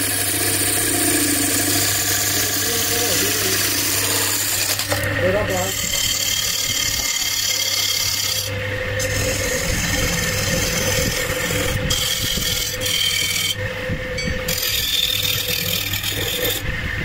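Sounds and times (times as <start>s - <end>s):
chisel scraping turning wood: 0.0s - 13.6s, 14.2s - 16.7s
lathe humming: 0.0s - 17.0s.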